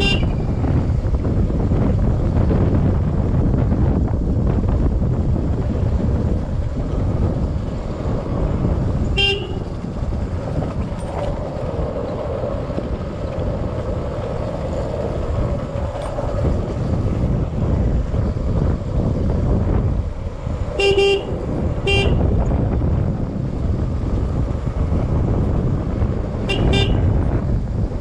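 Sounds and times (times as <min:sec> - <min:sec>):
wind rushing over microphone: 0:00.0 - 0:28.0
short horn toot: 0:09.2 - 0:09.7, 0:20.8 - 0:22.2, 0:26.5 - 0:27.0.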